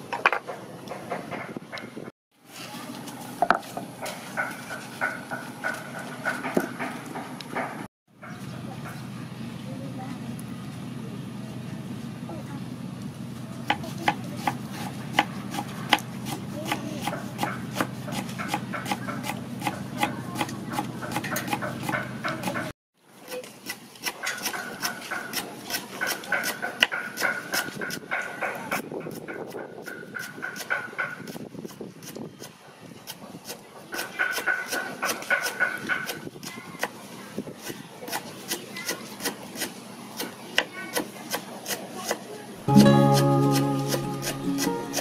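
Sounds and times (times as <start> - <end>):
knife chopping on wooden board: 13.7 - 22.6.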